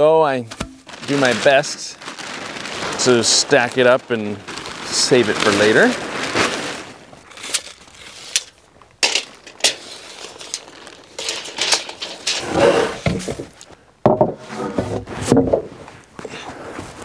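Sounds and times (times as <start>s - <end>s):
board dragging: 12.2s - 13.5s, 14.3s - 15.9s
wooden boards knocking: 14.0s - 15.7s.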